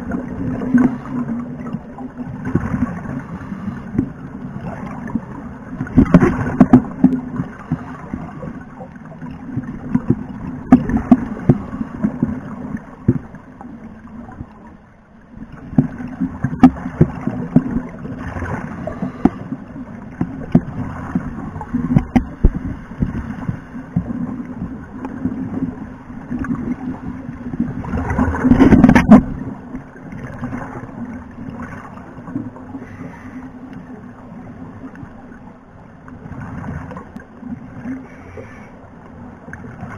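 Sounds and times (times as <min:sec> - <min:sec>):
steady low underwater hum: 0:00.0 - 0:39.9.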